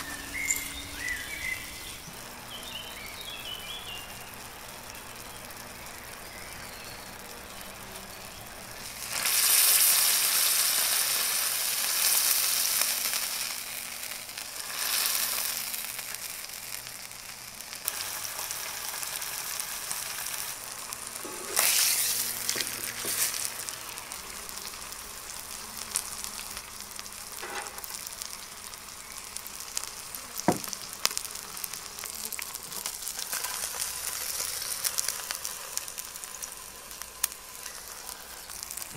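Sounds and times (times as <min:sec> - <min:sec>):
steak sizzling in a pan: 0:00.0 - 0:38.9
sharp knock: 0:30.5 - 0:30.7.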